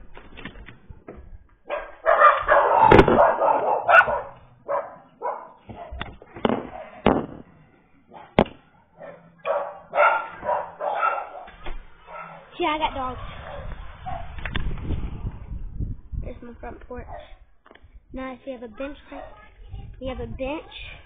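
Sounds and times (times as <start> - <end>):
dogs barking: 1.7 - 7.0, 8.1 - 12.5, 13.2 - 14.4.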